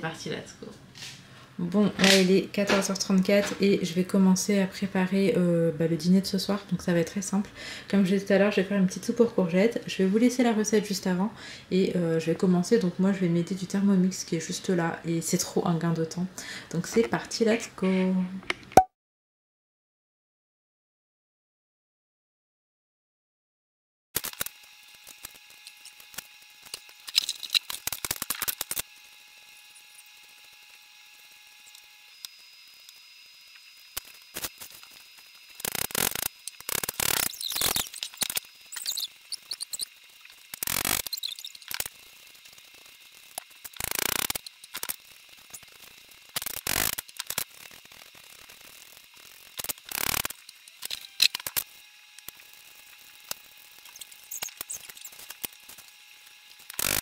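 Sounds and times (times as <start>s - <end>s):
peeler scraping vegetables: 34.0s - 45.8s, 52.3s - 57.0s.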